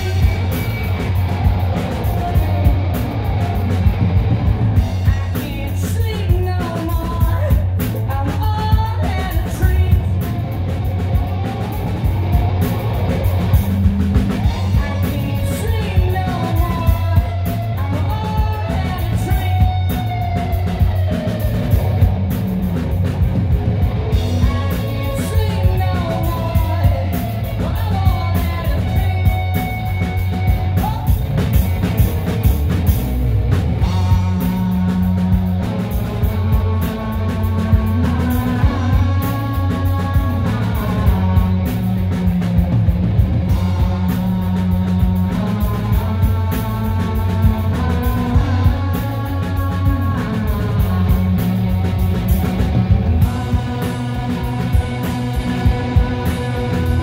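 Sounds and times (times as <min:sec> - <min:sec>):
man singing: 0:00.0 - 0:01.1, 0:04.8 - 0:10.3, 0:14.4 - 0:21.7, 0:24.1 - 0:31.4, 0:33.8 - 0:42.2, 0:43.5 - 0:57.0
drums: 0:00.0 - 0:57.0
electric guitars: 0:00.0 - 0:57.0.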